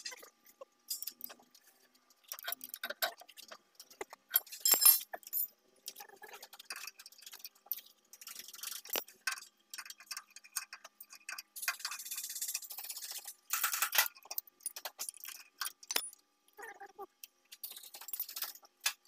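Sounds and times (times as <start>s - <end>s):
wrench clinking on metal nuts: 4.3s - 5.5s, 8.6s - 16.2s.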